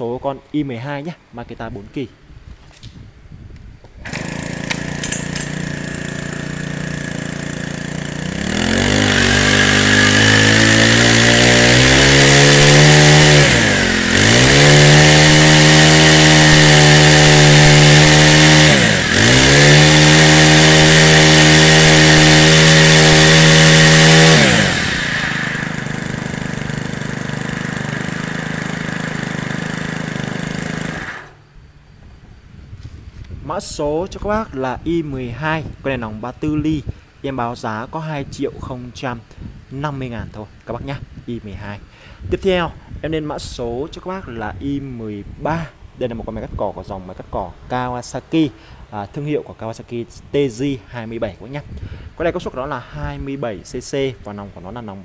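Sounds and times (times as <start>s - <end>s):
brush cutter engine revving: 4.0s - 31.5s.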